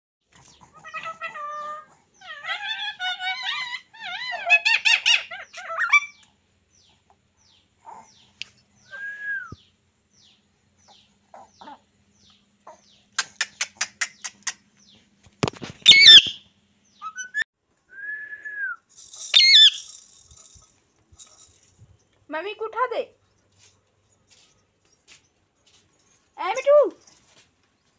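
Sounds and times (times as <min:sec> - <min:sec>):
parakeets chattering: 0:10.8 - 0:14.6, 0:15.8 - 0:16.4, 0:19.0 - 0:20.7
shrill parakeet screeches: 0:15.8 - 0:16.4, 0:19.3 - 0:20.0
parakeet whistles: 0:15.9 - 0:16.4, 0:19.3 - 0:19.9.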